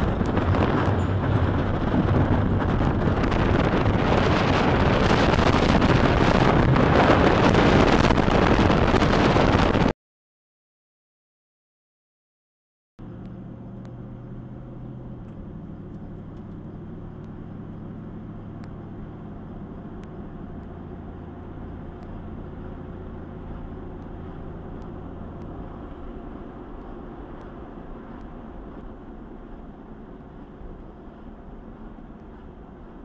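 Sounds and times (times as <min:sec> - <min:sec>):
car engine drone: 0:00.0 - 0:09.9, 0:13.0 - 0:33.0
tyre and wind noise: 0:00.0 - 0:09.9.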